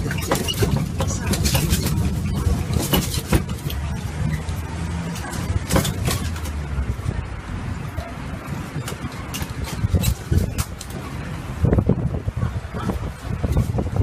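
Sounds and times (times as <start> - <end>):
carriage knocks and rattles: 0.0 - 6.9, 8.5 - 11.2
engine humming: 0.0 - 14.0.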